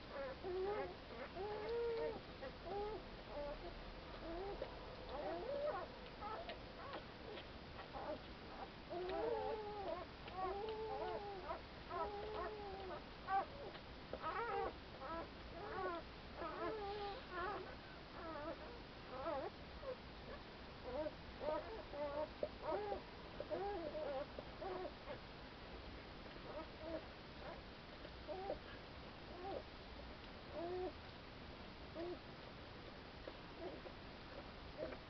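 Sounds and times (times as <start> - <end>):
puppies whimpering and squeaking: 0.1 - 20.0, 20.8 - 25.2, 28.3 - 28.6.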